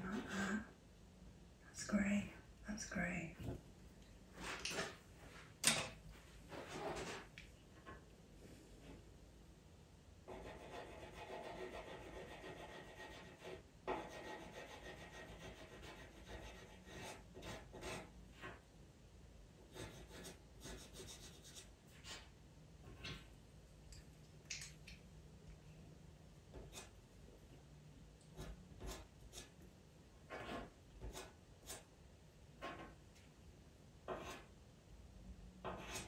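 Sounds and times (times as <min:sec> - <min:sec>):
pencil scratching on paper: 0:10.3 - 0:18.6, 0:19.7 - 0:22.3, 0:26.5 - 0:27.0, 0:28.4 - 0:29.6, 0:30.2 - 0:31.9, 0:34.1 - 0:34.5, 0:35.6 - 0:36.0.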